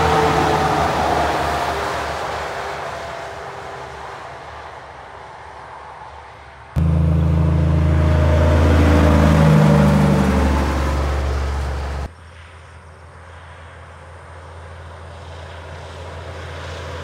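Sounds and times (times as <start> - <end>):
truck diesel engine drone: 0.0 - 4.8, 6.8 - 12.2.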